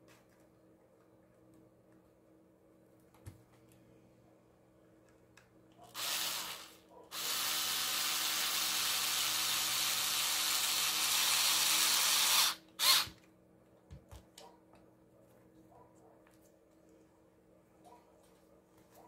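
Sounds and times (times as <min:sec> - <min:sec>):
cordless screwdriver running: 0:06.0 - 0:13.2.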